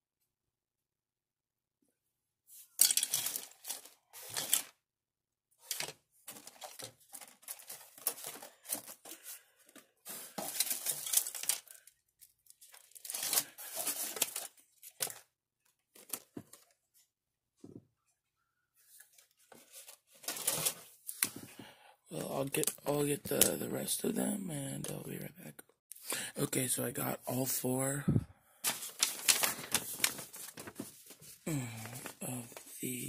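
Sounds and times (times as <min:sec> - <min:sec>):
plastic parts rattling: 0:02.8 - 0:04.8, 0:05.6 - 0:15.3, 0:19.5 - 0:21.5
plastic bag crinkling: 0:05.7 - 0:15.2, 0:28.7 - 0:32.7.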